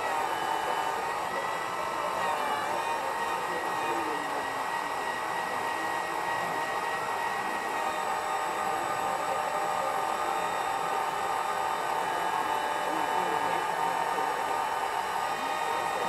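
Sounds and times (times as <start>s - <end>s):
hydraulic pump whining hum: 0.0s - 16.0s.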